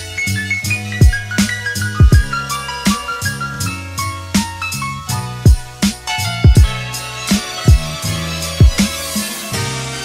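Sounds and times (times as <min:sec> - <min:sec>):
deep kick drum hits: 0:01.0 - 0:02.4, 0:05.4 - 0:06.9, 0:07.7 - 0:08.0, 0:08.6 - 0:08.9
sharp drum hits: 0:01.0 - 0:03.4, 0:05.4 - 0:08.0.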